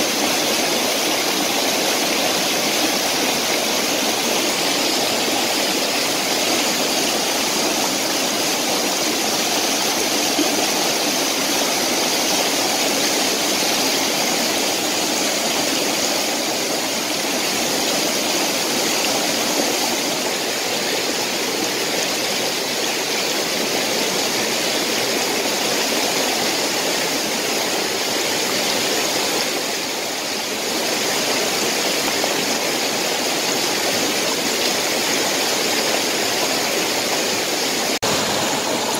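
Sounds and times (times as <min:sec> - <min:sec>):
stream rushing over rocks: 0:00.0 - 0:38.9.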